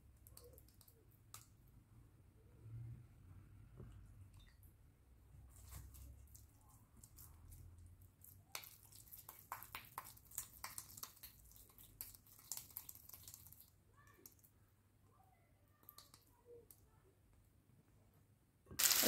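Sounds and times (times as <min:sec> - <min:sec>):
wet hands patting minced meat: 0:05.5 - 0:13.7.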